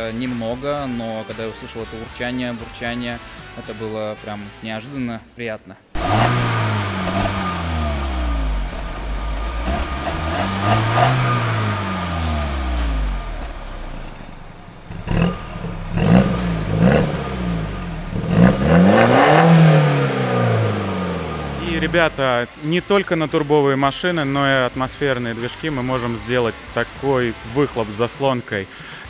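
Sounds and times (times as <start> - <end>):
car engine revving: 5.9 - 28.6
engine throttle blips: 6.0 - 28.1.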